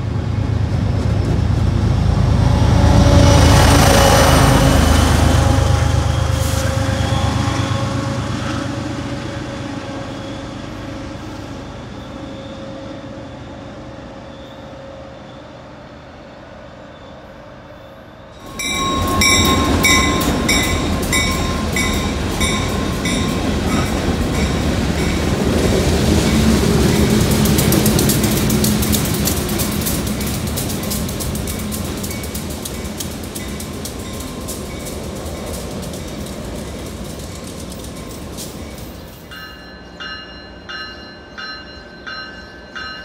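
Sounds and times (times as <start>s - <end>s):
train pulling away: 0.0s - 43.0s
train wheels clicking over rail joints: 18.4s - 39.6s.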